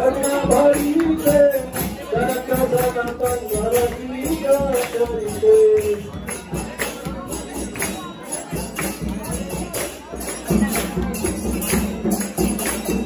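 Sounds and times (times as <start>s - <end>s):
voices singing slow melody: 0.0s - 6.7s
jingling hand percussion: 0.0s - 13.0s.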